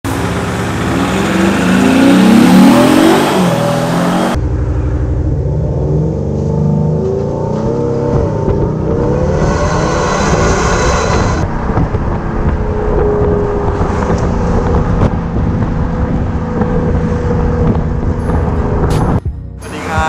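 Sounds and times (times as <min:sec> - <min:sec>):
road and wind noise: 0:00.0 - 0:20.0
synthetic engine exhaust note: 0:00.2 - 0:11.6.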